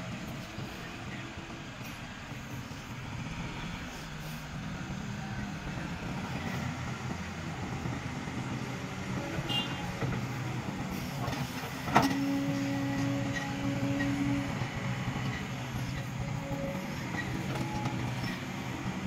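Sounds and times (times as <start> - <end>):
diesel engines rumbling: 0.0 - 19.0.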